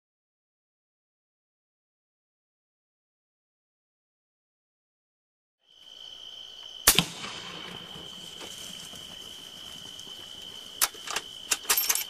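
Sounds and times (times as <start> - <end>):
rifle shot with echo: 6.8 - 8.2
sharp clicks: 10.8 - 12.0.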